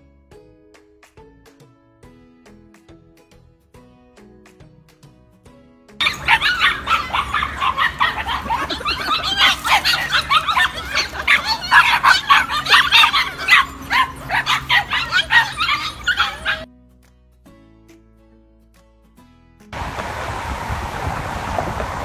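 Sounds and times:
soft guitar music: 0.0 - 19.8
puppies yapping and barking: 6.0 - 16.7.

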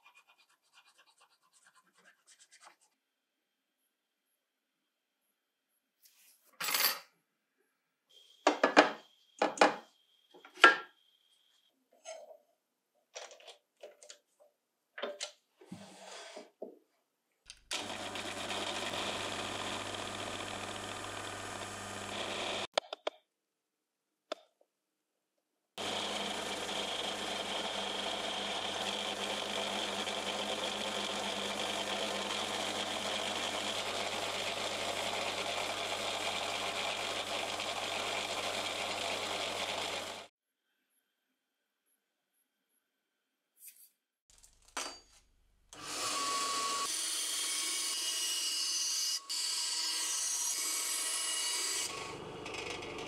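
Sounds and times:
small electric motor running: 17.8 - 22.7, 25.8 - 40.3.

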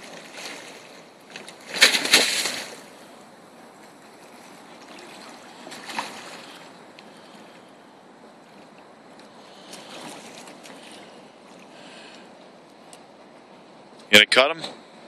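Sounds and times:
seawater washing: 0.0 - 13.8
shark splashing at surface: 1.4 - 2.9.

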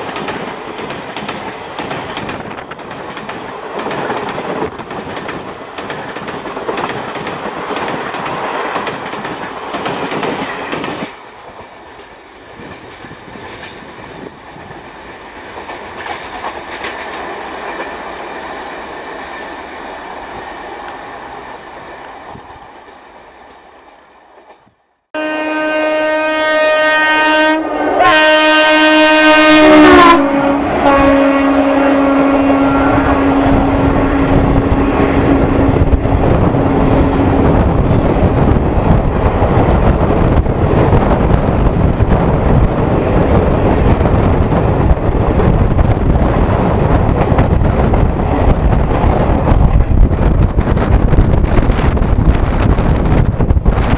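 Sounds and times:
train wheel clatter: 0.0 - 18.1
electric locomotive horn: 25.2 - 35.9.

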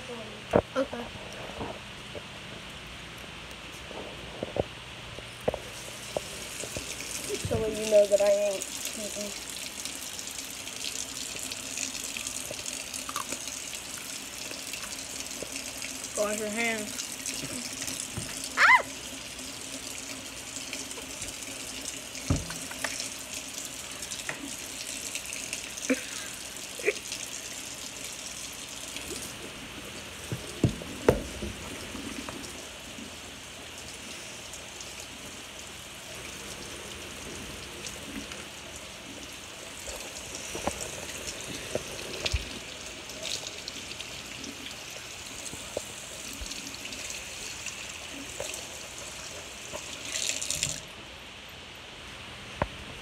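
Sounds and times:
tap running into sink: 17.4 - 18.5, 22.2 - 23.1, 30.2 - 32.4
knocks and clatters in sink: 22.3 - 23.0, 30.3 - 31.6.

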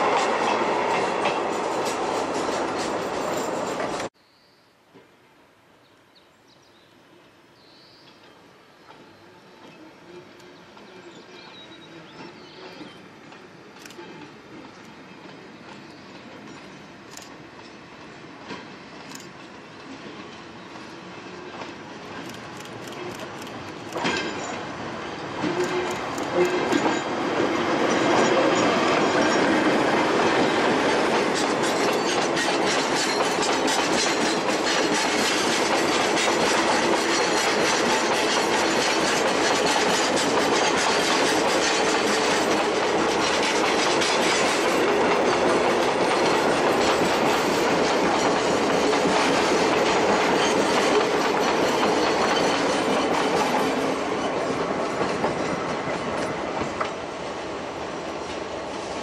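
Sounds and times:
freight train rolling past: 0.0 - 4.2, 7.8 - 59.0
wheels clicking over rail joints: 21.5 - 57.0.

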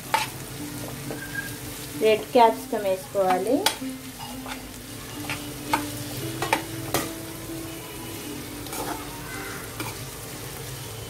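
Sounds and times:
vegetables sizzling in a frying pan: 0.0 - 11.0
spatula tapping and scraping a pan: 0.1 - 0.3, 3.2 - 7.1, 9.8 - 10.0.

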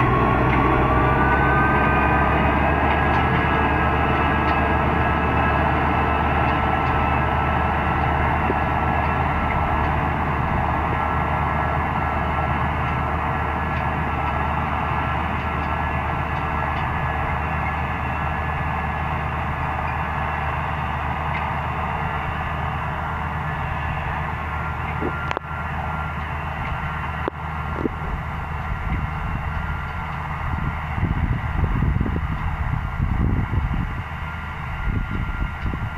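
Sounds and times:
low rumble: 0.0 - 17.9, 26.7 - 35.9
tractor diesel engine droning: 0.0 - 35.9.

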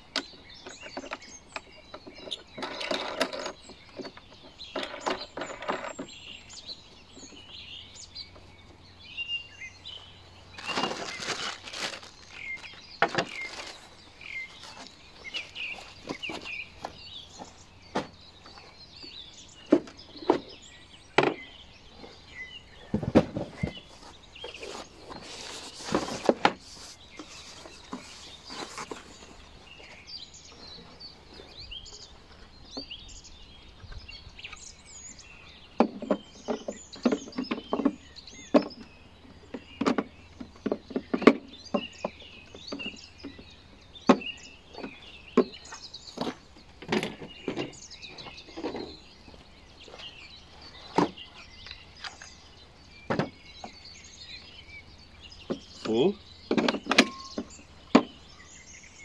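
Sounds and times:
birds chirping faintly: 0.0 - 59.0.

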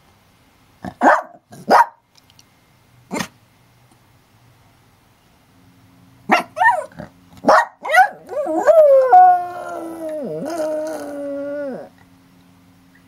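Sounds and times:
dog yelping: 6.3 - 11.1
dog howling: 7.8 - 12.0.

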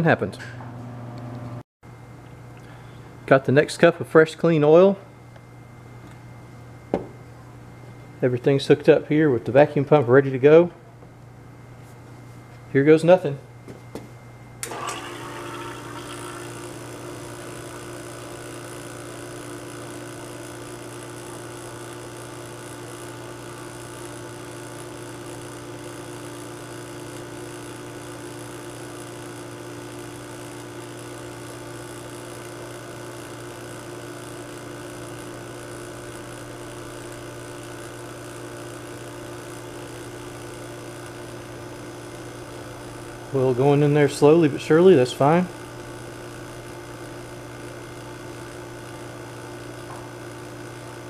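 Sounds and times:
vacuum pump humming: 13.6 - 51.0.

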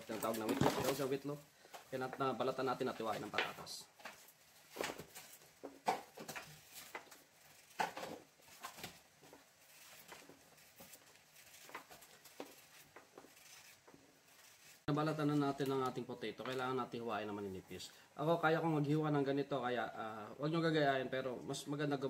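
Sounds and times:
knife scraping potato skin: 6.3 - 14.9.

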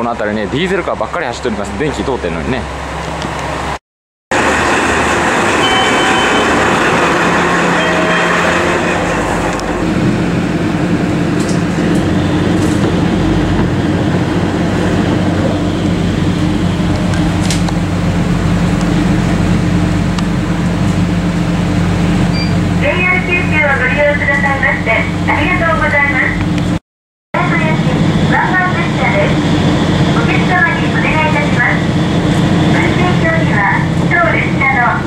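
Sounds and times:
diesel engine drone: 0.0 - 26.8, 27.4 - 35.0
broad noise: 27.4 - 35.0.

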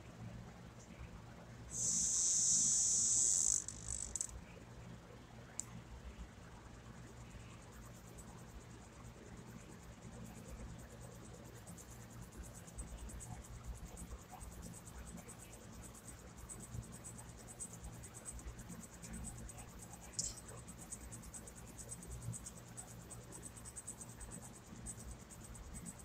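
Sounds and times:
insect trilling: 1.7 - 4.3, 19.9 - 21.0.

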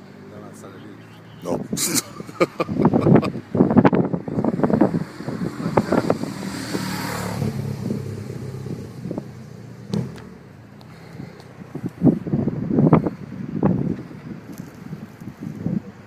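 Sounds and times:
vehicle driving past: 4.4 - 11.8.

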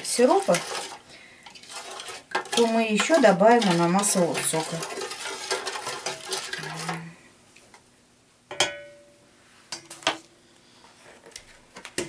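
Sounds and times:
spoon stirring and scraping pot: 0.0 - 7.2.

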